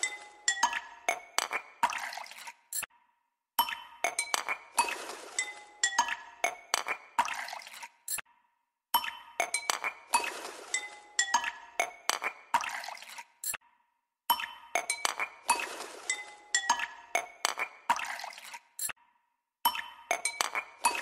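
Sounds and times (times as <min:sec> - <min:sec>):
glassy chiming background music: 0:00.0 - 0:01.2.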